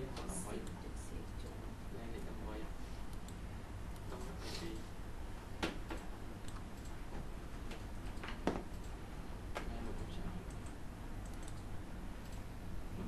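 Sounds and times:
steady low hum: 0.0s - 13.0s
computer input clicks: 5.6s - 7.0s, 9.6s - 12.5s.

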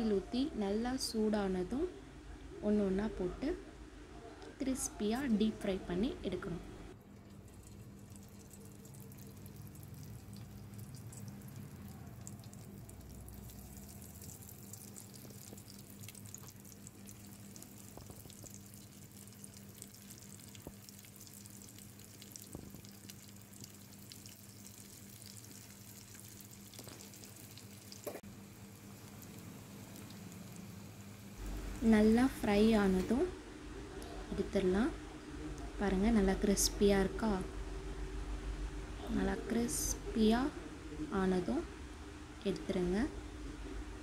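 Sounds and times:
chicken deep-frying in oil: 7.0s - 33.3s.

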